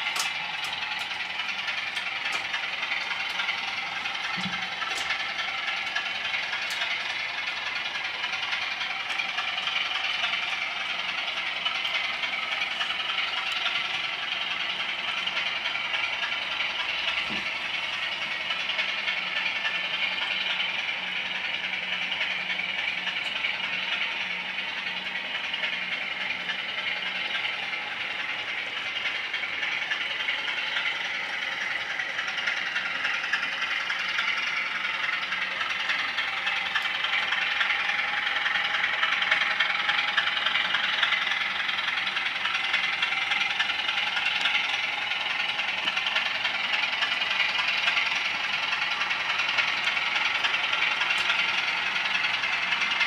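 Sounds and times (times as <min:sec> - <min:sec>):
model trains rattling on track: 0:00.0 - 0:53.0.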